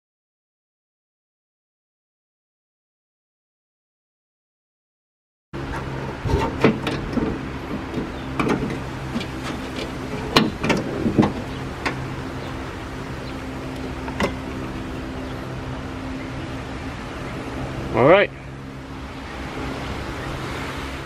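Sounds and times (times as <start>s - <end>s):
low hum: 5.6s - 21.0s.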